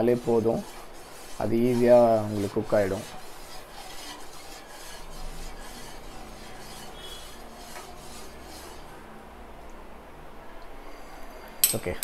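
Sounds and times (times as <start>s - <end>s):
spoon scraping a pot: 0.0s - 9.0s
low steady hum: 0.0s - 12.0s.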